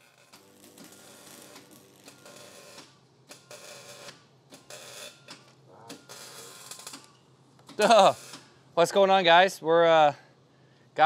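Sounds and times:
welding crackle: 0:00.0 - 0:05.2, 0:05.9 - 0:07.1, 0:07.8 - 0:08.4
workshop tool sounds: 0:00.0 - 0:08.5.

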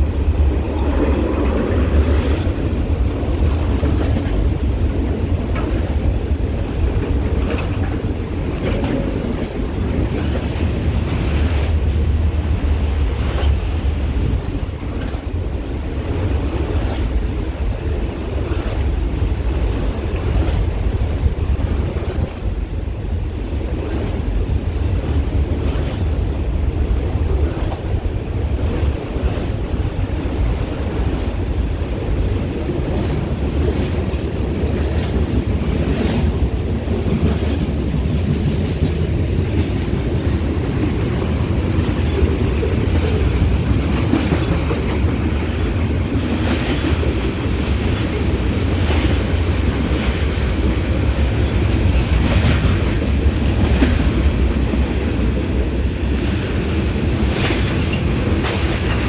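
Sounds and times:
wheels clicking over rail joints: 0:00.0 - 0:22.6
train wheels rumbling on rails: 0:00.0 - 0:59.0.

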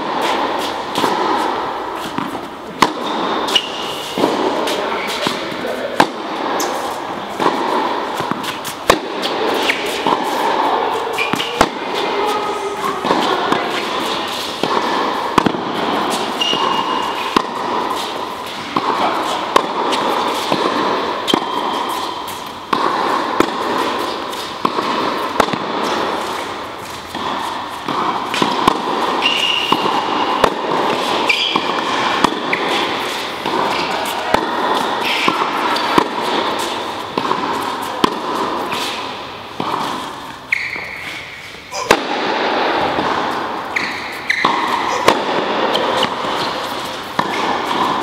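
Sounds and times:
tennis ball struck by racket: 0:00.0 - 0:41.0, 0:41.8 - 0:48.0
short high squeaks: 0:16.3 - 0:17.2, 0:31.2 - 0:31.6, 0:40.5 - 0:41.4, 0:43.7 - 0:44.5.

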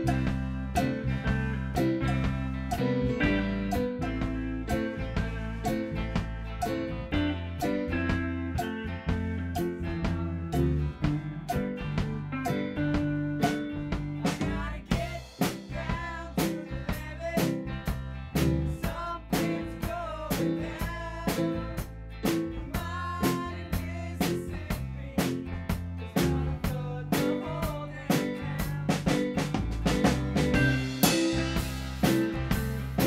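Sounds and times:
lead guitar bending notes: 0:00.0 - 0:14.6, 0:30.4 - 0:33.0
drum kit beat: 0:00.0 - 0:33.0
rock band playing: 0:00.0 - 0:33.0.

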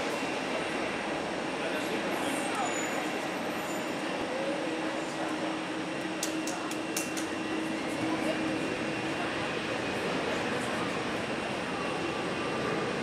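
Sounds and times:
jet engines idling: 0:04.1 - 0:13.0.

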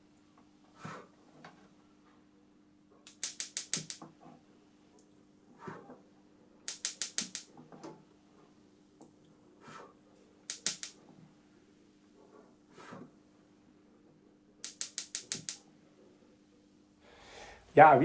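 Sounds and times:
spark igniter clicks: 0:03.1 - 0:04.0, 0:06.7 - 0:07.5, 0:10.5 - 0:11.0, 0:14.6 - 0:15.6.

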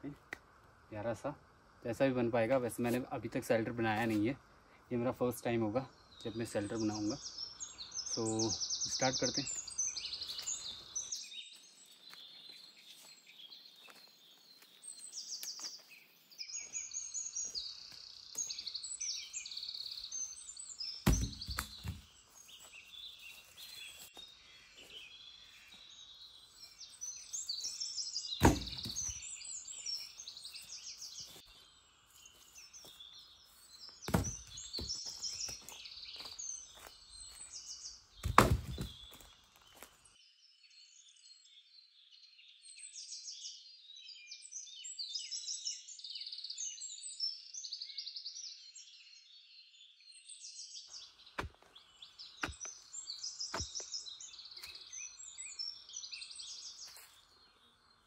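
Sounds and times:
birds chirping and singing: 0:01.9 - 0:40.0, 0:40.7 - 0:58.0
heavy thuds: 0:28.4 - 0:29.1.

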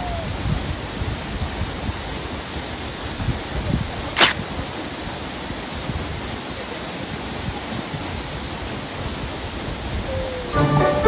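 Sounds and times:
waterfall rushing: 0:00.0 - 0:11.0
short sharp noise: 0:04.2 - 0:04.4.

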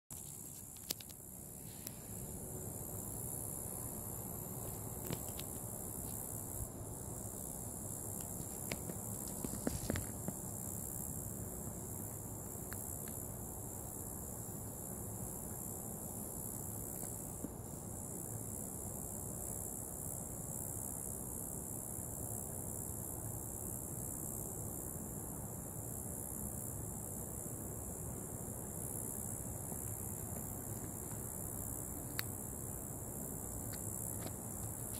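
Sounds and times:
high-pitched insect chorus: 0:00.1 - 0:34.9.

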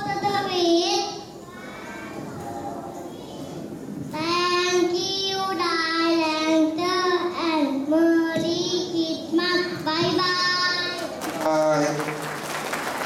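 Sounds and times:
child singing: 0:04.2 - 0:11.1.

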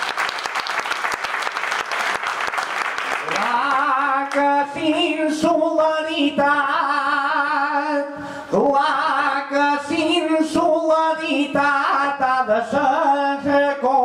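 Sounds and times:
man singing a cappella: 0:03.3 - 0:14.0.

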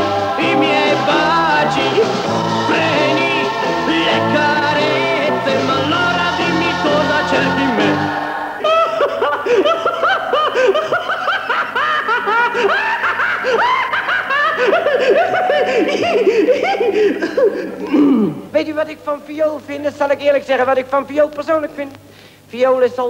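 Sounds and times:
people laughing heartily: 0:00.0 - 0:17.9
operatic tenor record: 0:00.0 - 0:22.0.

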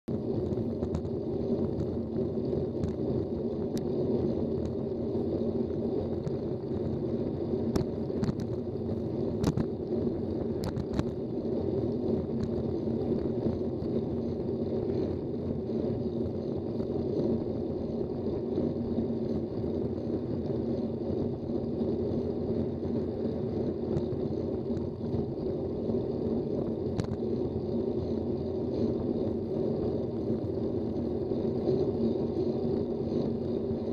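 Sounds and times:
road noise: 0:00.0 - 0:33.9
wind rumble: 0:00.0 - 0:33.9
sharp clicks from bumps: 0:00.4 - 0:02.0, 0:07.7 - 0:08.6, 0:09.3 - 0:11.2.

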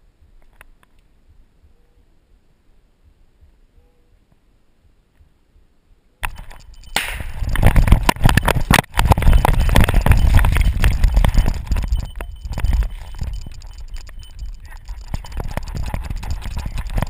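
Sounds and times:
wind rumble on microphone: 0:05.6 - 0:17.0.

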